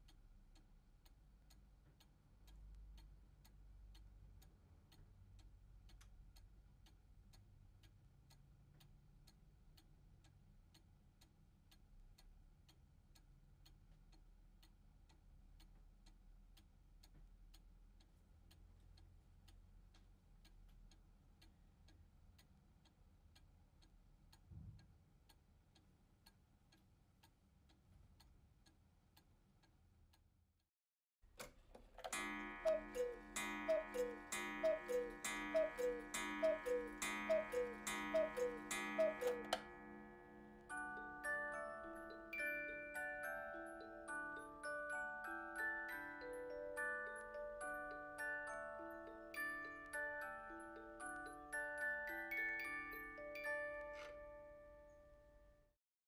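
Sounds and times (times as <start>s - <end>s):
clock ticking: 31.4s - 44.8s.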